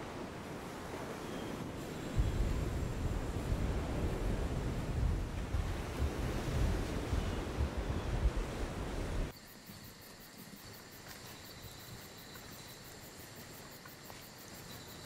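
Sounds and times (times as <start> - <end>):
surf breaking on a beach: 0.0 - 9.3
wind: 0.0 - 15.0
insects chirping in a pulsing trill: 9.3 - 15.0.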